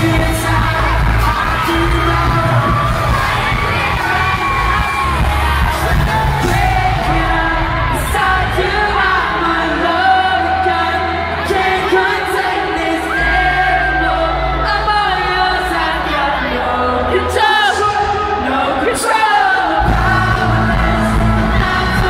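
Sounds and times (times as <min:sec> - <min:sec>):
fans yelling: 0:00.0 - 0:22.0
live pop band: 0:00.0 - 0:22.0
man singing into microphone: 0:00.0 - 0:22.0.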